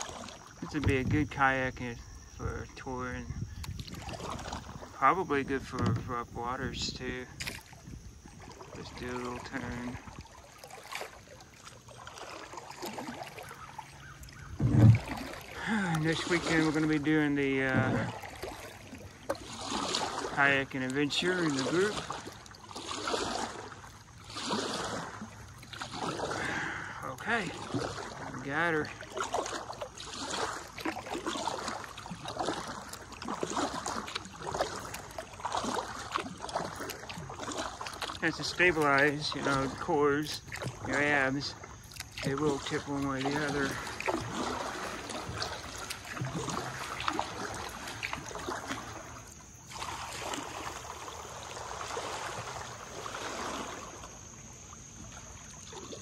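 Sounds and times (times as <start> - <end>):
kayak paddle strokes in water: 0.0 - 56.0
short low thump: 14.5 - 15.2.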